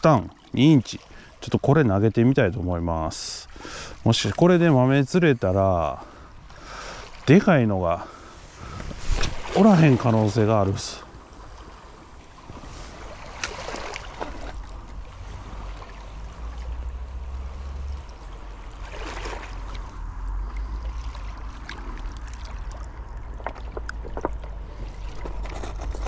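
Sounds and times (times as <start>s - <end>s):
surf washing up beach: 6.2s - 22.0s.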